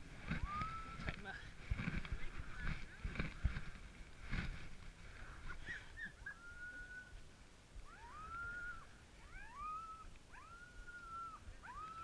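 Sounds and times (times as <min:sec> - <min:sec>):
dogs whining: 0:05.6 - 0:07.2, 0:07.9 - 0:12.0
dogs yelping: 0:07.8 - 0:12.0.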